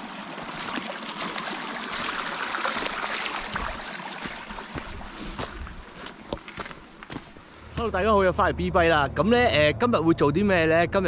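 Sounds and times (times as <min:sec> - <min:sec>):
creek trickling over stones: 0:00.0 - 0:07.7
footsteps on gravel and rock: 0:00.6 - 0:08.0.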